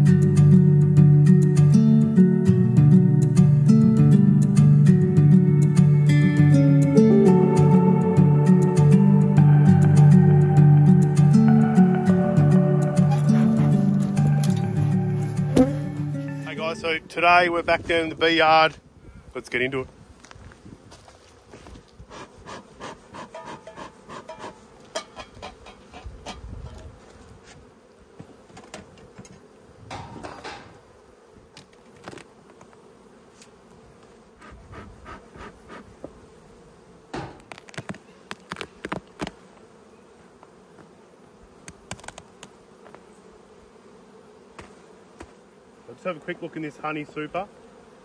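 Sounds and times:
honeybees humming: 0:00.0 - 0:18.6, 0:19.9 - 0:48.0
wooden hive boxes knocking: 0:15.4 - 0:16.0, 0:44.5 - 0:45.4.

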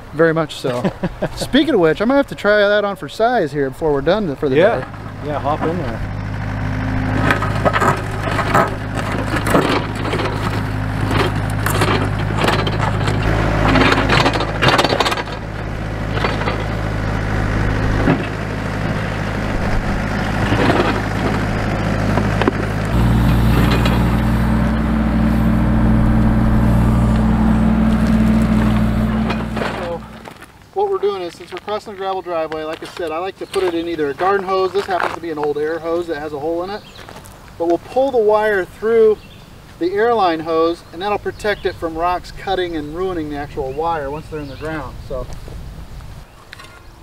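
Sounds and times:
excavator engine running: 0:01.0 - 0:30.7
bucket scraping through gravel: 0:07.2 - 0:16.8, 0:20.3 - 0:21.8, 0:22.9 - 0:32.0.

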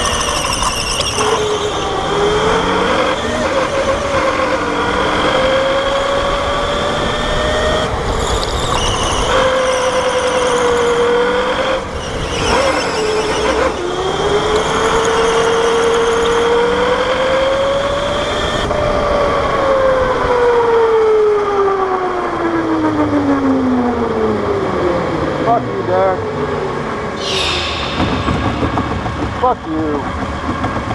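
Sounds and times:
electric go-kart motor whining: 0:00.0 - 0:21.0.

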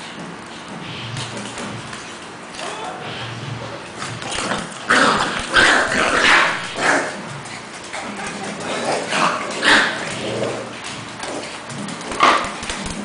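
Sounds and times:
dogs barking while play-fighting: 0:04.3 - 0:13.0.

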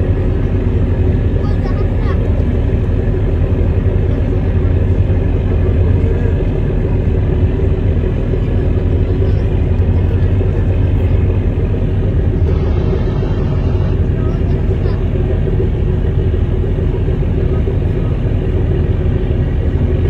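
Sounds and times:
boat engine drone: 0:00.0 - 0:20.0.

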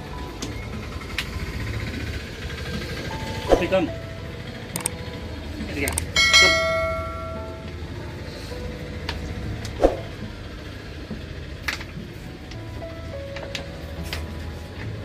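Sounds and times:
background music: 0:00.0 - 0:15.0
sharp clicks: 0:04.7 - 0:05.0, 0:05.8 - 0:06.2
chime-like struck note: 0:06.1 - 0:07.7.

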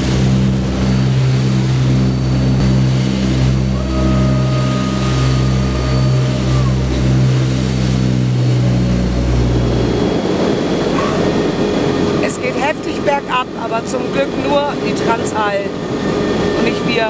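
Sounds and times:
rushing roar: 0:00.0 - 0:12.2
turboprop engines droning: 0:00.0 - 0:17.0.

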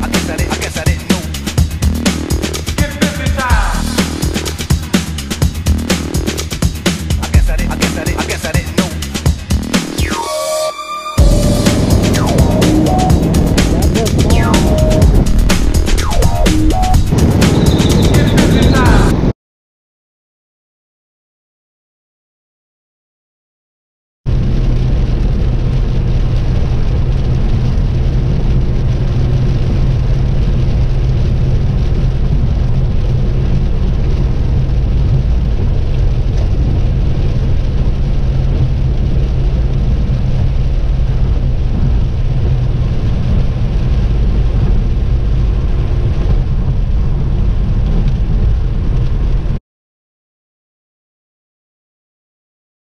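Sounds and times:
tyre noise on wet road: 0:24.3 - 0:49.6.

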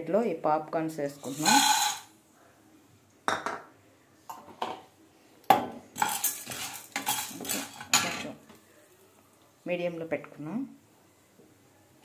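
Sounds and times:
popcorn kernels rattling in pan: 0:01.2 - 0:02.1, 0:06.0 - 0:08.3.

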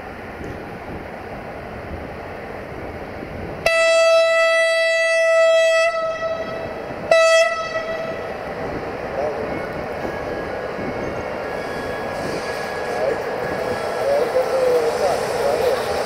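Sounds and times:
locomotive horn blasts: 0:03.6 - 0:08.3.

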